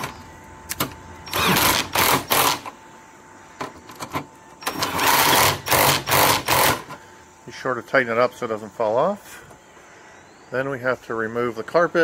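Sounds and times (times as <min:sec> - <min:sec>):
power driver bursts: 0:00.0 - 0:02.8, 0:03.6 - 0:07.1.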